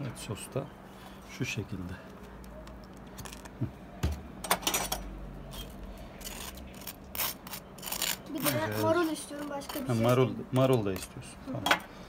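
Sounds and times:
knife scraping toasted bun: 5.4s - 10.1s.

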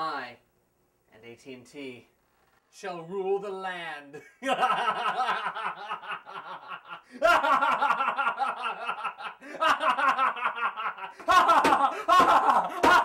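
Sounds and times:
man laughing maniacally: 4.2s - 13.0s.

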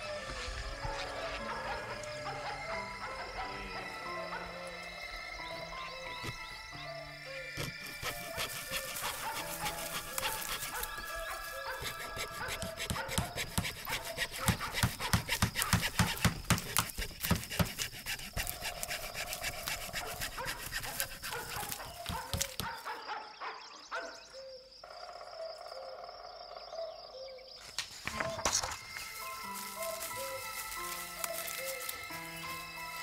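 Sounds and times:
background music: 0.0s - 17.5s, 27.8s - 33.0s
rhythmic strokes: 7.4s - 21.8s.

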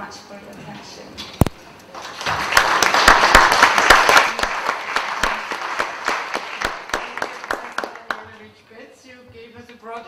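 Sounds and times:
audience applauding: 2.0s - 8.3s.

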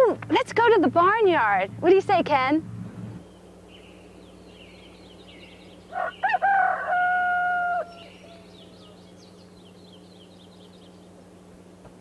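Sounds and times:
low steady hum: 0.0s - 12.0s
faint small birds chirping: 3.0s - 12.0s
rooster crowing: 5.9s - 9.1s.

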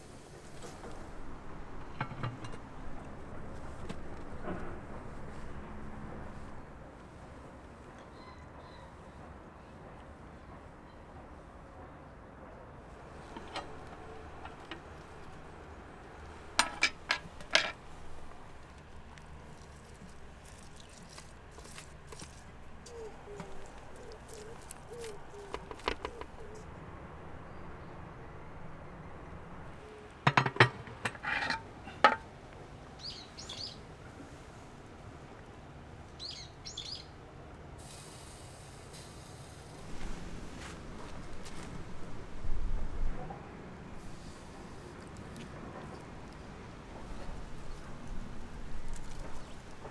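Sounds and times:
sharp clinks and knocks: 16.6s - 17.8s, 30.3s - 32.2s
small bird chirping: 33.0s - 33.8s, 36.2s - 37.1s.

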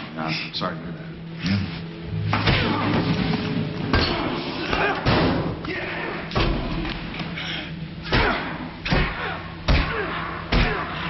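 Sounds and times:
body slammed against partition: 8.1s - 10.9s
heavy thuds of punches: 8.1s - 10.9s.

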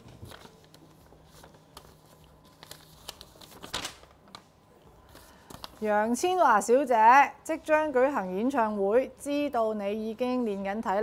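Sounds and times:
paper rustling and crinkling: 0.0s - 6.3s.

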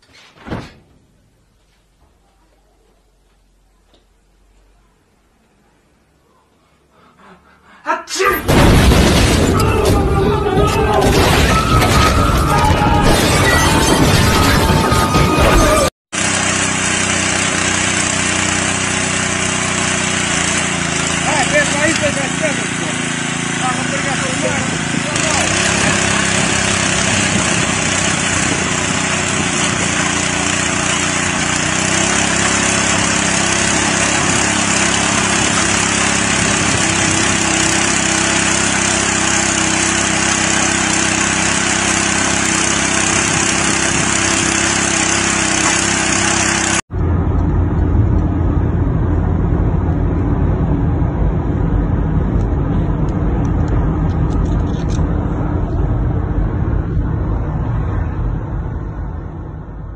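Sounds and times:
garden tiller engine running: 13.7s - 46.8s.

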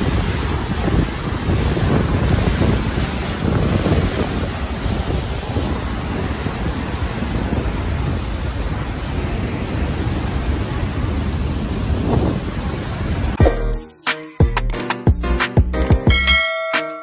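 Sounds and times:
waterfall rushing: 0.0s - 13.4s
wind buffeting microphone: 0.0s - 13.4s.

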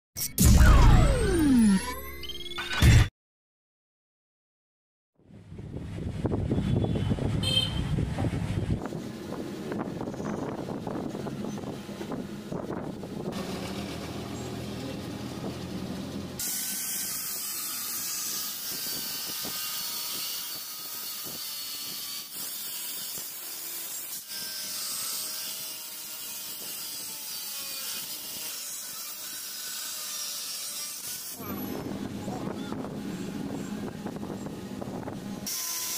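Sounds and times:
angle grinder cutting steel: 13.2s - 35.9s.

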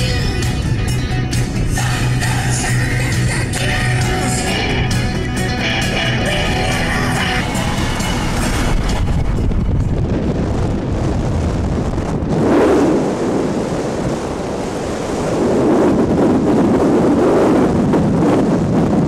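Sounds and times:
truck rumbling across ice: 0.0s - 13.3s
wind buffeting microphone: 0.0s - 19.0s.

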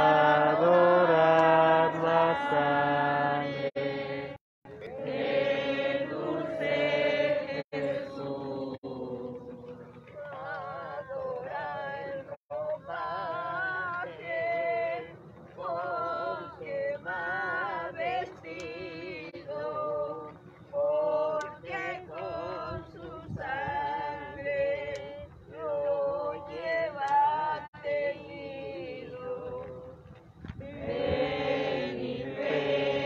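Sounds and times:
group singing a hymn unaccompanied: 0.0s - 33.0s.

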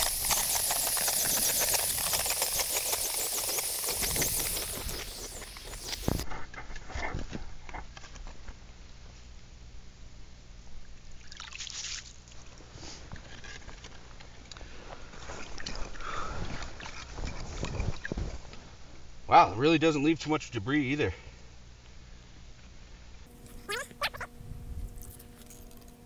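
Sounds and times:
skimmer scraping slush and ice chips: 0.0s - 6.0s
ice auger drilling hiss: 0.0s - 6.2s.

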